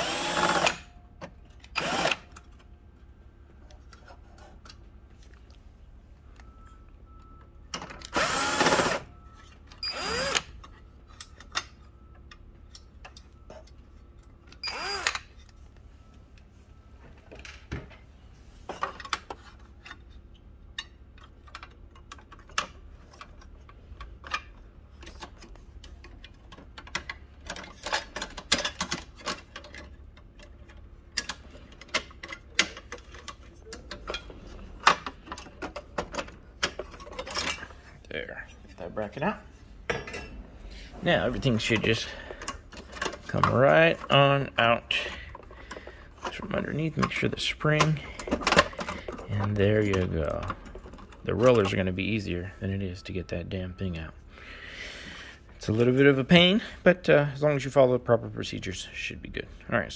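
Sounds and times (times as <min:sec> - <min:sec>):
screwdriver whirring and scraping: 0:00.0 - 0:00.9, 0:01.6 - 0:02.6, 0:08.0 - 0:11.5, 0:13.5 - 0:15.6
clicks and taps of metal parts: 0:20.7 - 0:37.6.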